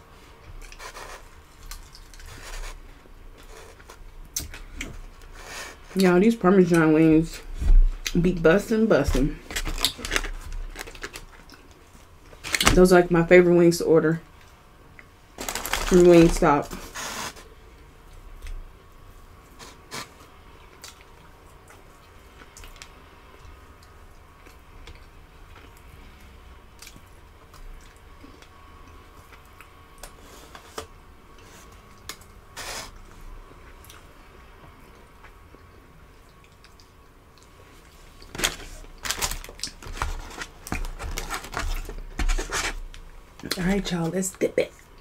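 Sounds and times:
paper wrapper crinkling: 9.1 - 11.6, 15.4 - 17.4, 38.2 - 43.5.

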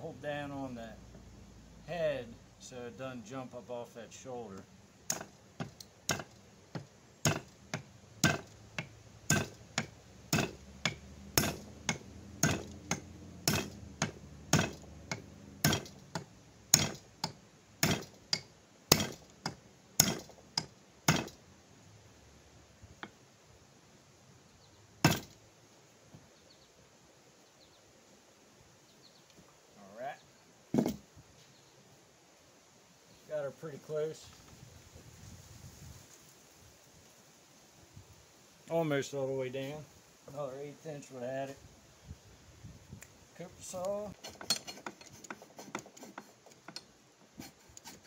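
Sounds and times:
hatchet head blows on handle: 7.2 - 21.4.

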